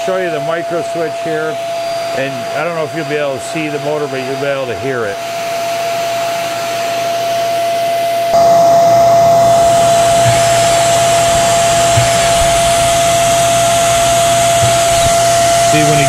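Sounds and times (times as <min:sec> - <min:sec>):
vacuum cleaner whining: 0:00.0 - 0:16.0
brush-roll motor running: 0:02.2 - 0:16.0.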